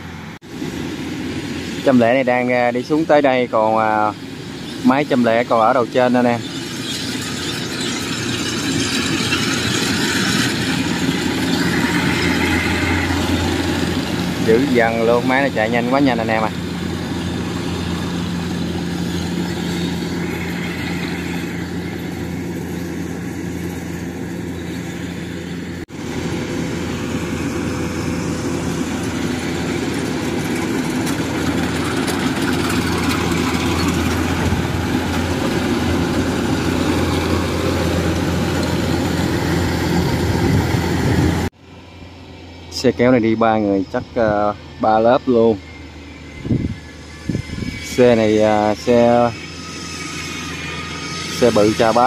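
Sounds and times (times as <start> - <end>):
diesel engine hum: 0.0 - 52.0
machinery clatter: 1.1 - 41.5.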